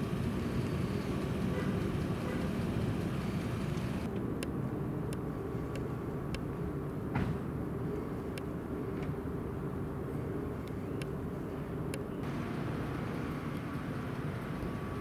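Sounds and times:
vehicle engines idling: 0:00.0 - 0:04.1, 0:07.8 - 0:15.0.

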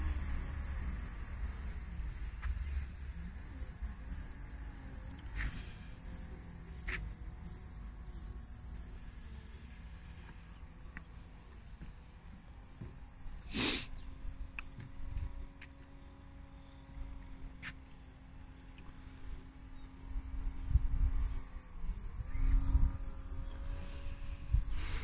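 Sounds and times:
model boat motor humming: 0:00.0 - 0:25.0.

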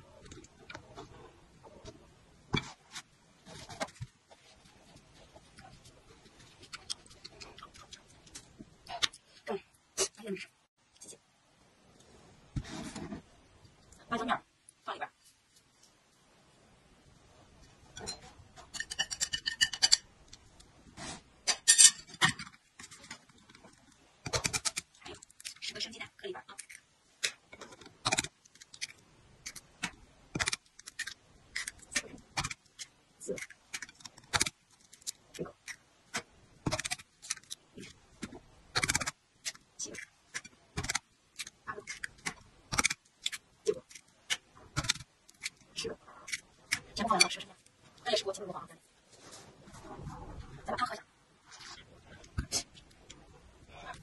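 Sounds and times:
tableware clicking and scraping: 0:17.9 - 0:20.1, 0:21.4 - 0:23.1
eggshells cracking: 0:26.5 - 0:47.0.

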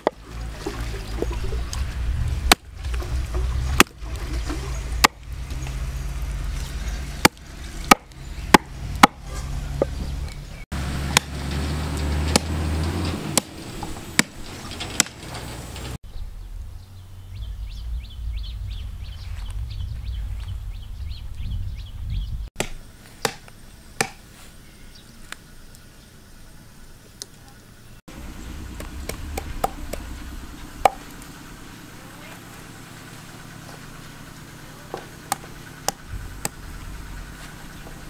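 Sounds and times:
cleaver chopping on wooden block: 0:07.2 - 0:10.0, 0:22.6 - 0:24.2.

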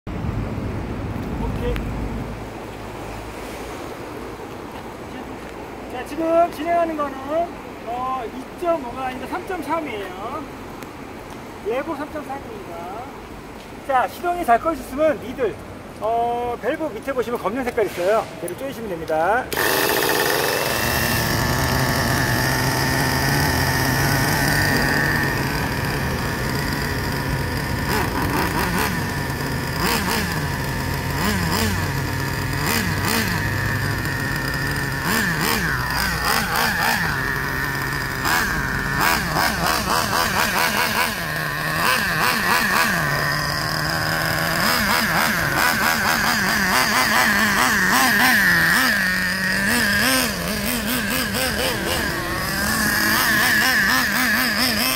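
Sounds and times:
nitro engine revving: 0:19.4 - 0:54.9.

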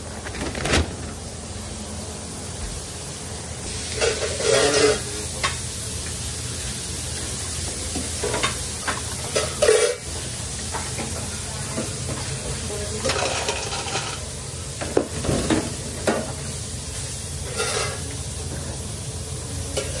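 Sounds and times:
oil sizzling in deep fryer: 0:01.0 - 0:20.0
wire fry baskets clanking: 0:13.0 - 0:14.2, 0:17.4 - 0:18.1.

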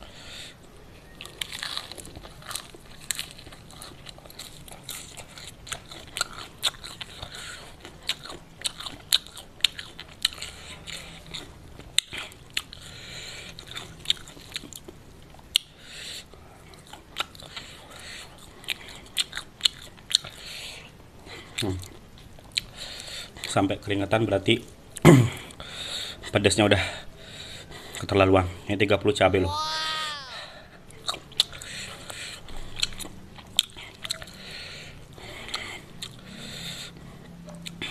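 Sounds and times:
crunchy chewing: 0:01.2 - 0:14.9.

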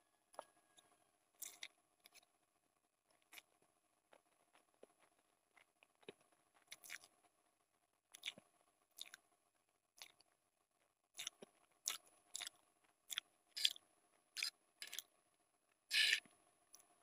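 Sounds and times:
person chewing noodles: 0:01.4 - 0:02.3, 0:03.1 - 0:07.4, 0:08.1 - 0:09.3, 0:09.9 - 0:10.4, 0:11.1 - 0:15.1, 0:15.9 - 0:17.0.

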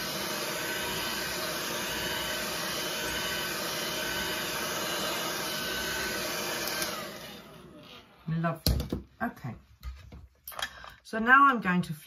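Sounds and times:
hair dryer running: 0:00.0 - 0:08.2.

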